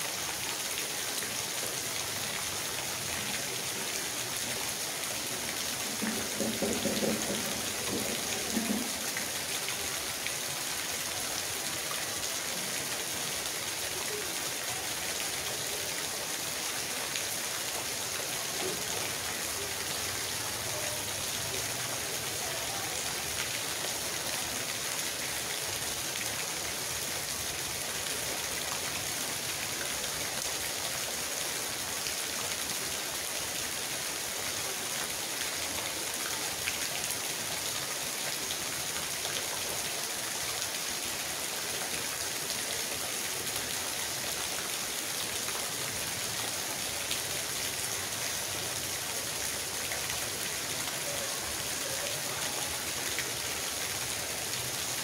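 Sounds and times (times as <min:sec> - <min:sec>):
runoff water splashing: 0:00.0 - 0:31.3
rain on puddles and gravel: 0:00.0 - 0:55.0.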